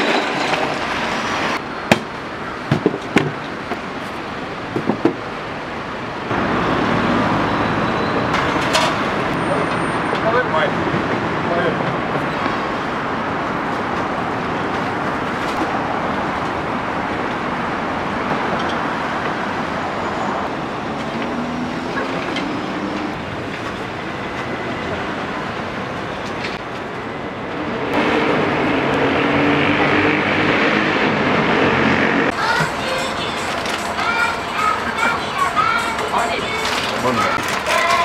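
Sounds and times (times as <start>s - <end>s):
cars passing close by: 6.2s - 38.0s
heavy vehicle passing: 27.6s - 37.7s.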